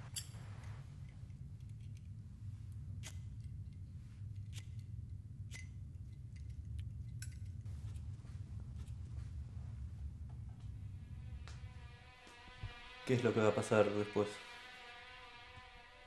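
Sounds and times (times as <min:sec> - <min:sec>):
steady low hum: 0:00.0 - 0:16.0
small clicks and snips: 0:03.0 - 0:04.9, 0:05.5 - 0:08.1.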